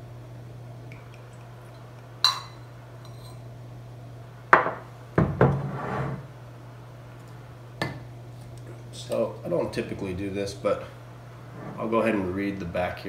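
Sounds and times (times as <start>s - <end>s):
steady low hum: 0.0s - 13.0s
cognac pouring: 0.7s - 3.4s
glass clinking: 0.9s - 3.4s.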